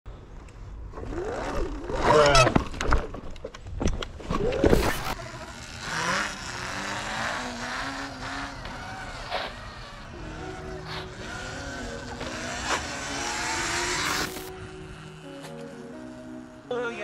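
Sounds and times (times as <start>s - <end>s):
electric dirt bike motor whining: 4.4s - 17.0s.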